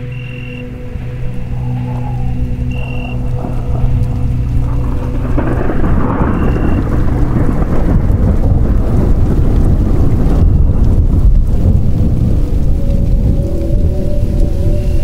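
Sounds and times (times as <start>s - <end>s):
rain falling: 0.0s - 15.0s
rolling thunder rumble: 0.0s - 15.0s.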